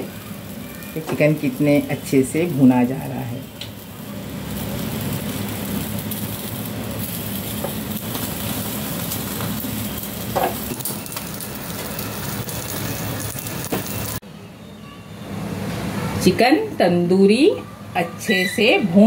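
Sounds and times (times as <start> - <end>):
chicken sizzling: 0.0 - 14.2
gas burner rushing: 0.0 - 14.2
crackles and pops: 3.5 - 14.2.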